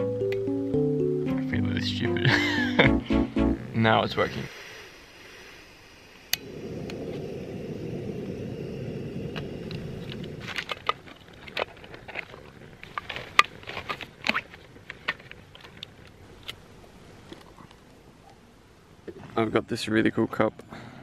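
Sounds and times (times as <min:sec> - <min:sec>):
camping stove burning: 0:03.8 - 0:19.4.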